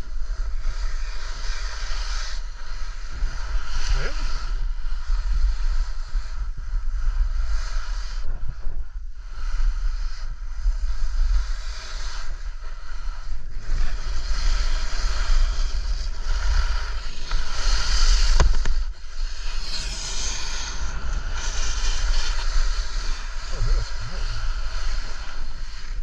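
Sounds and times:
wind buffeting microphone: 12.2 - 26.0
skis scraping over snow: 13.6 - 26.0.

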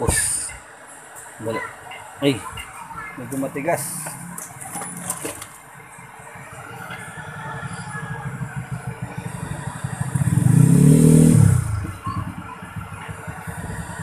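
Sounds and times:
vehicle engine passing by: 6.5 - 14.0.

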